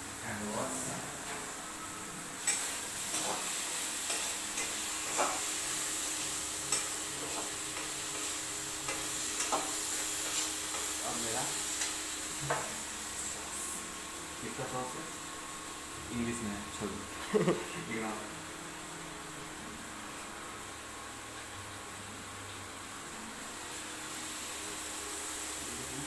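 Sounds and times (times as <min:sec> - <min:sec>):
food sizzling in a pan: 0:00.0 - 0:26.0.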